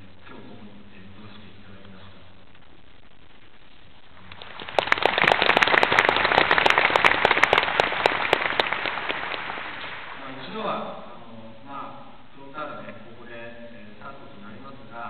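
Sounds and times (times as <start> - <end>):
crowd applauding: 4.2 - 10.3.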